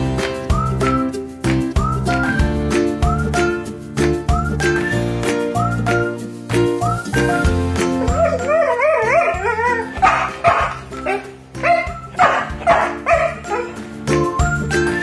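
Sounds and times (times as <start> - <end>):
light music with bell-like notes: 0.0 - 15.0
dog whining: 8.0 - 13.8
dog yelping barks: 8.0 - 13.8.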